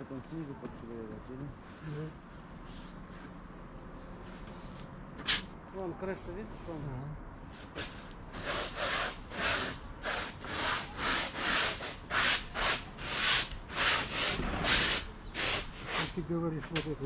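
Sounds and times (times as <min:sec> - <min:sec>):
stiff brush scrubbing roof: 0:07.7 - 0:17.0.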